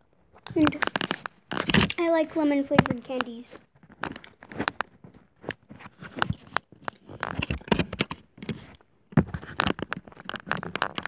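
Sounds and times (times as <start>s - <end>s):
clicks and taps: 2.7s - 11.0s.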